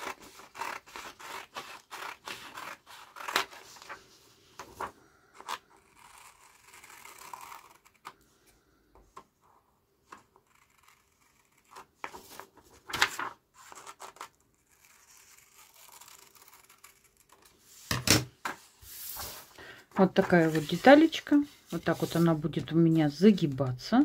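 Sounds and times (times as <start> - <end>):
paper rustling: 12.0 - 14.3, 17.7 - 23.8.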